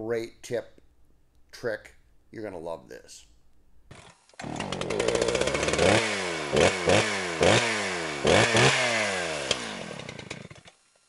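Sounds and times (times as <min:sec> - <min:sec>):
small gasoline engine revving: 0:03.9 - 0:11.0.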